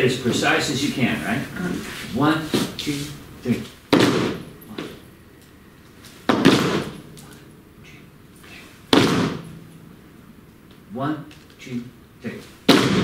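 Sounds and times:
people stomping on wooden floor: 3.9s - 4.4s, 6.3s - 6.9s, 8.9s - 9.5s.

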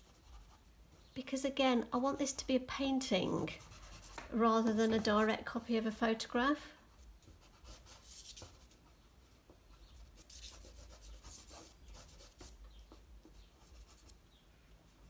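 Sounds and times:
pastel scratching on paper: 7.0s - 9.0s, 9.8s - 14.2s.

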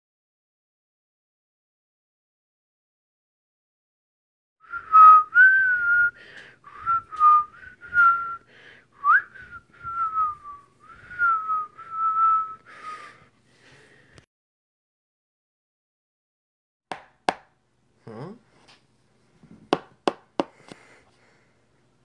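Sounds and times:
person whistling a tune: 4.6s - 13.2s.

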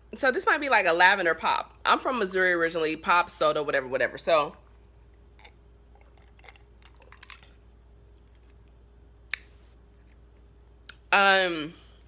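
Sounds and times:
person sipping soda: 5.2s - 7.6s.

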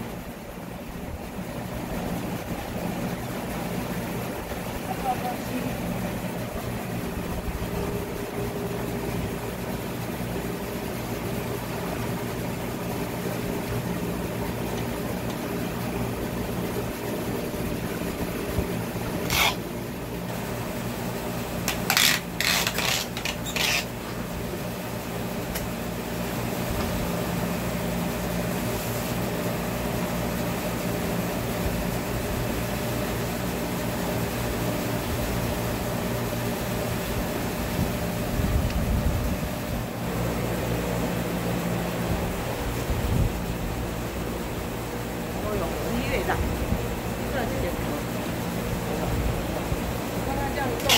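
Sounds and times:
electric fan humming: 0.0s - 50.9s
sharp handling noises: 19.1s - 19.7s, 21.6s - 24.2s.

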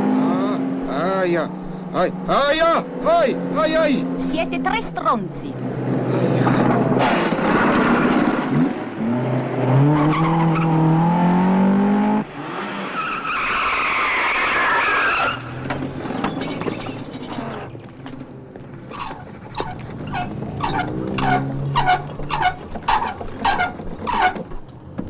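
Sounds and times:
road noise: 0.0s - 25.0s
car engine revving hard: 5.8s - 13.0s, 20.1s - 23.8s
tyres squealing: 13.0s - 24.8s.

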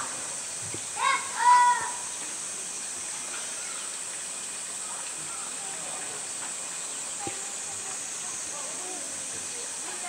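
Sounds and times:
background hiss: 0.0s - 10.0s
child's high-pitched call: 1.0s - 2.0s
faint distant voices: 1.0s - 10.0s.

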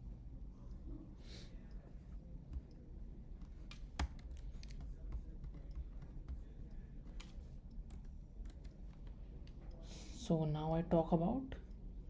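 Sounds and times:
low steady hum: 0.0s - 12.0s
computer keyboard and mouse clicks: 3.4s - 9.6s.

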